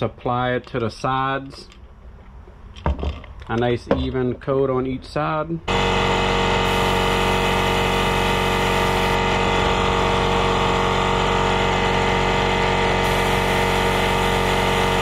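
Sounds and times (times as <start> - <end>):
air compressor motor humming: 5.7 - 15.0.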